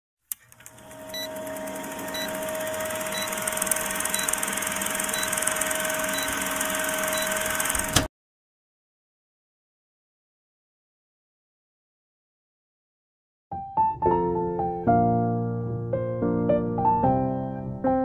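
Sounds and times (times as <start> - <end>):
film projector running: 0.3 - 8.1.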